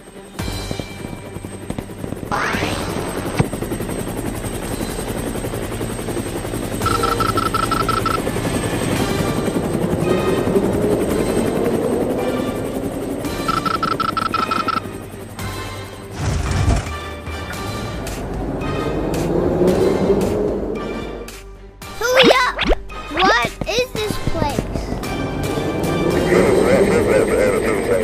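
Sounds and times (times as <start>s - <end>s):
cartoon helicopter rotor chopping: 0.4s - 16.8s, 22.0s - 28.0s
rapid high beeping: 6.8s - 8.3s, 13.4s - 15.0s.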